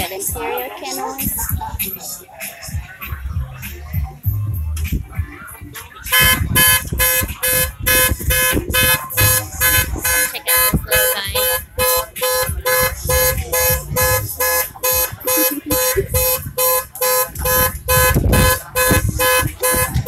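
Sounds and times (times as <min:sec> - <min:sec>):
fast electronic beeping: 0:06.1 - 0:20.0.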